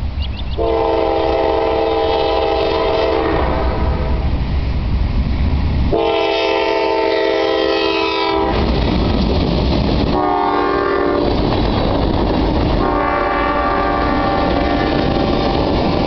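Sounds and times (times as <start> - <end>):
locomotive air horn blasts: 0.6 - 4.3, 5.9 - 8.7, 10.1 - 11.3, 12.8 - 15.6
train wheels clacking on rails: 7.8 - 16.0.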